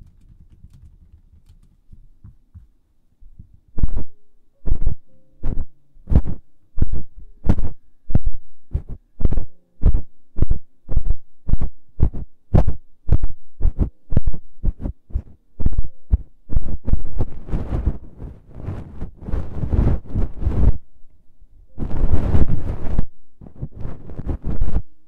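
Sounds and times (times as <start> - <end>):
ear pick brushing microphone: 3.8 - 20.8, 21.8 - 25.0.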